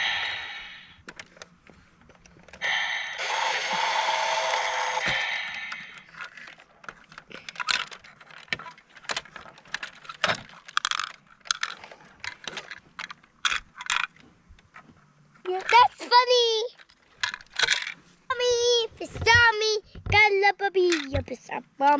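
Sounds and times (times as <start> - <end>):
hard plastic toy clicking: 2.2 - 14.2, 20.8 - 21.4
steady electronic tone: 2.6 - 6.1.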